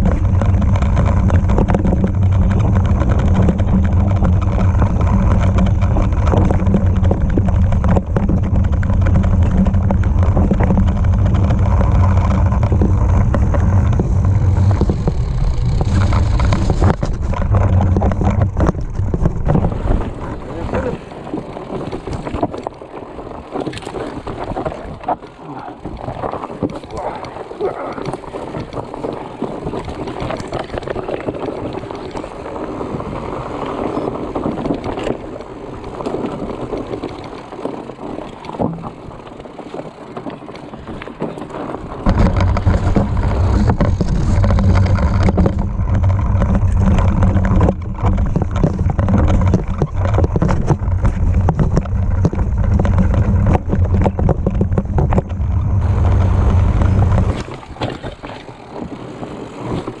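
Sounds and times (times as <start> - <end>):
bike rattling and knocking: 0.0 - 60.0
bike tyre noise on dirt: 0.0 - 60.0
loud low rumble: 8.4 - 20.9, 50.8 - 57.6.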